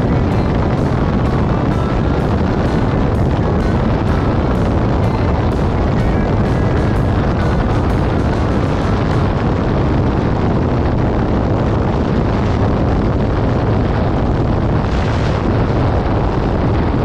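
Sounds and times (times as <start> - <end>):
motorcycle engine cruising: 0.0 - 10.6
wind buffeting microphone: 0.0 - 17.0.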